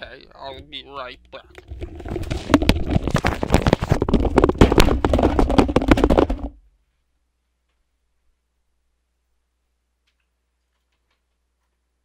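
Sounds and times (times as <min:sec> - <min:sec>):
microphone being bumped and handled: 0:01.6 - 0:06.6.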